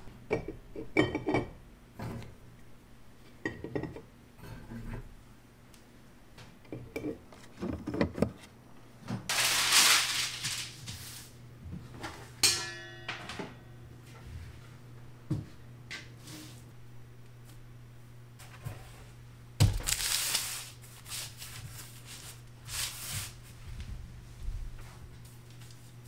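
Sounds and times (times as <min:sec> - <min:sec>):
steady low hum: 0:00.0 - 0:26.0
dishes being set down: 0:12.0 - 0:13.7
sharp ringing clank: 0:12.4 - 0:13.9.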